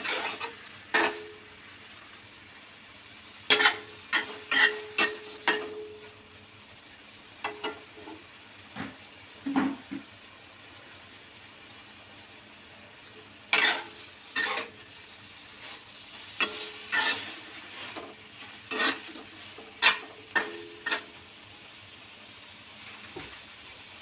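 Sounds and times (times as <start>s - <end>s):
spatula scraping metal wok: 0.0s - 1.4s, 3.5s - 6.2s, 13.4s - 21.2s
faint steady hiss: 0.0s - 24.0s.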